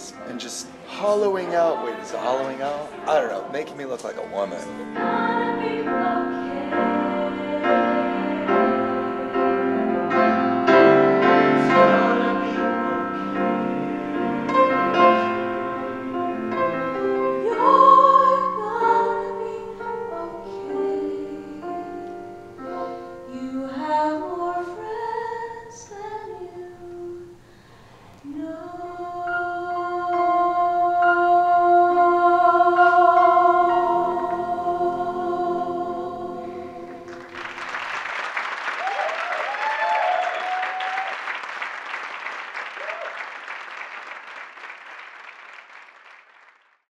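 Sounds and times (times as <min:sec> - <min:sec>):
choir singing: 0:00.0 - 0:27.2, 0:28.2 - 0:37.6
piano: 0:00.0 - 0:43.9.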